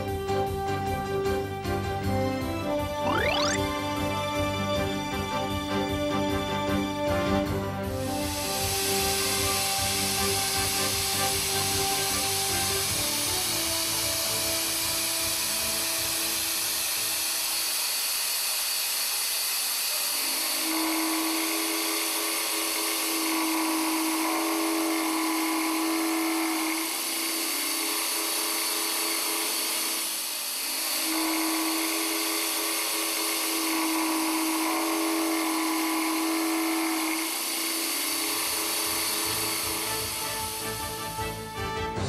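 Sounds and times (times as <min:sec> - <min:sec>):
end mill cutting steel: 0:08.2 - 0:41.2.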